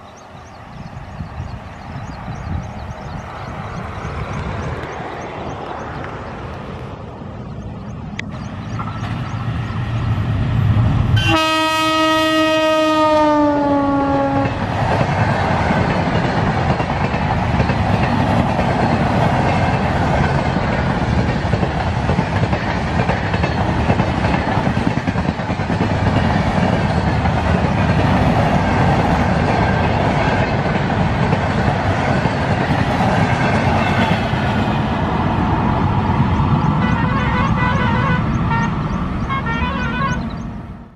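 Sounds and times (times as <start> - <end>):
train wheels on rails: 0.0 - 40.8
passenger train rumbling past: 0.0 - 40.9
locomotive horn blast: 11.1 - 14.6, 36.8 - 40.3.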